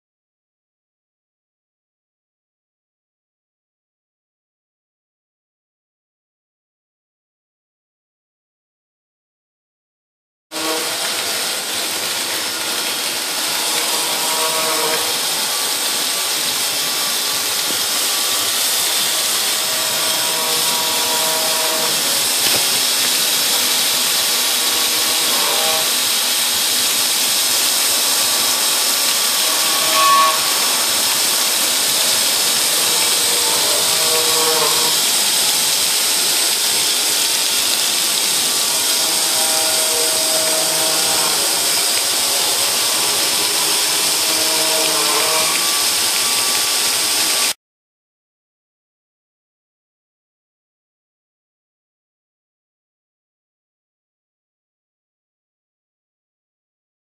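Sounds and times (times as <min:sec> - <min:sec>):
milling spindle cutting stone: 0:10.6 - 0:47.6
water spray hissing: 0:10.8 - 0:47.5.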